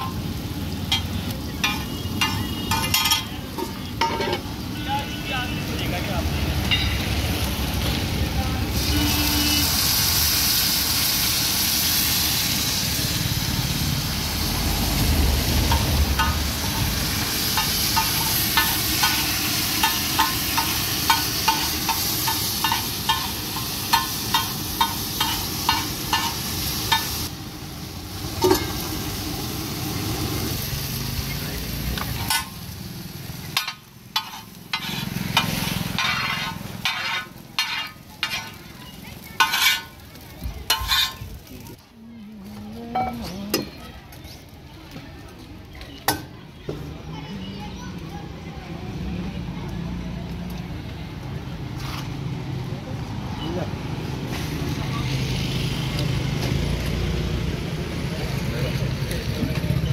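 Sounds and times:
food sizzling on griddle: 0:00.0 - 0:59.9
metal spatula striking griddle: 0:00.9 - 0:04.5, 0:15.7 - 0:16.5, 0:17.5 - 0:27.2, 0:32.2 - 0:32.6, 0:33.5 - 0:38.7, 0:39.3 - 0:40.0, 0:40.7 - 0:41.2.

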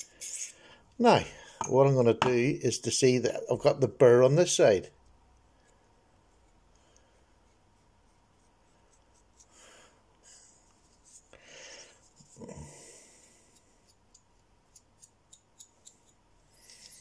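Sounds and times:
fingertips scraping knife blade: 0:13.5 - 0:17.0.

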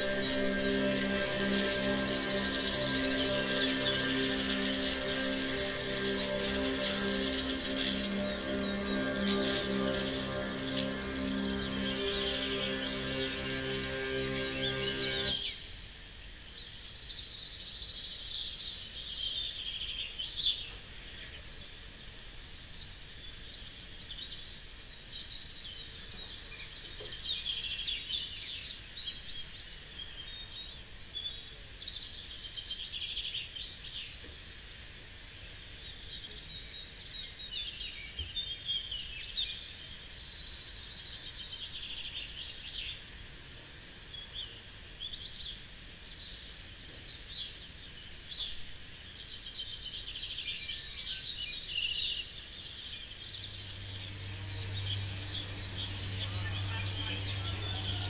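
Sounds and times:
birds chirping and singing: 0:00.0 - 0:15.6, 0:50.6 - 0:58.0.

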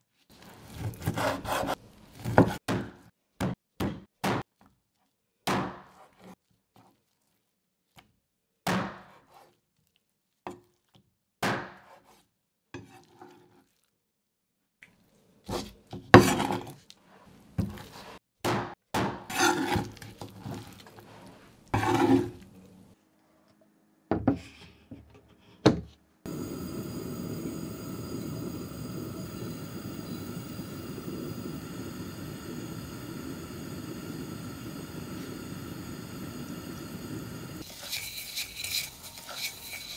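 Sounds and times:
sugar hissing in pot: 0:26.3 - 0:39.9.

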